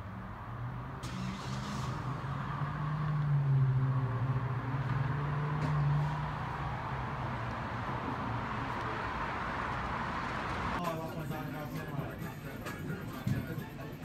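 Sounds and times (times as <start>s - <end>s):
vehicle engine hum: 0.0s - 10.8s.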